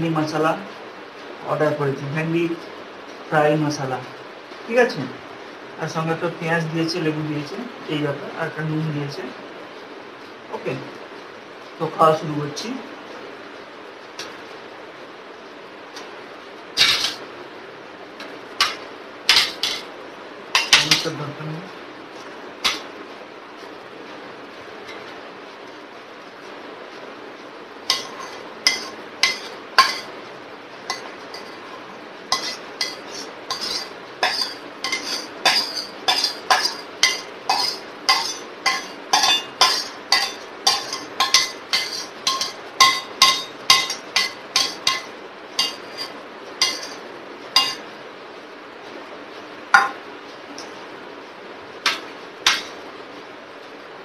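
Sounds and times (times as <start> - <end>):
metal spoon clinking on steel bowl: 18.6 - 19.8, 20.6 - 21.1, 27.9 - 30.1, 32.4 - 47.0, 47.6 - 47.8.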